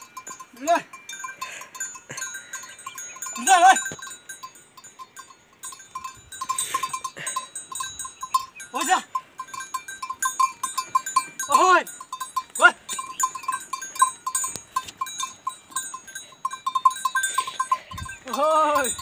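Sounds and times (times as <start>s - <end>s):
light high tinkling: 0.0s - 19.0s
man calling to oxen: 0.5s - 1.6s, 3.1s - 4.1s, 8.6s - 9.3s, 11.1s - 13.3s, 17.5s - 19.0s.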